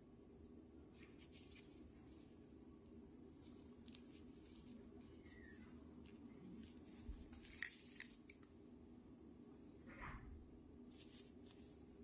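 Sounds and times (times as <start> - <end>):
soft brushing sound: 0.8 - 8.0, 10.8 - 12.0.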